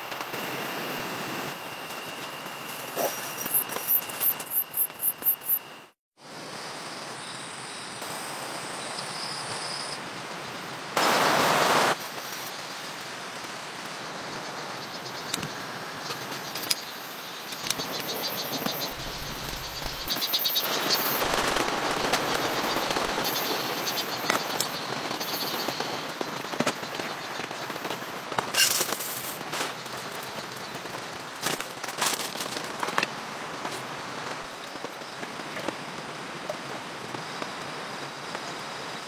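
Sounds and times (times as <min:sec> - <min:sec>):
heavy rain on tent: 0:11.0 - 0:14.7, 0:19.0 - 0:39.0.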